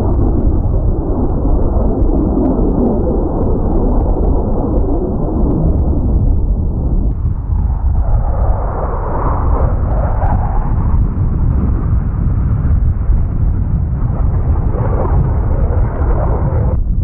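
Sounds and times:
jet roar: 0:00.0 - 0:17.0.

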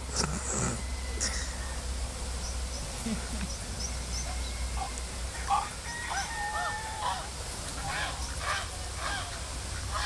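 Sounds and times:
waterfowl honking: 0:04.2 - 0:10.0.

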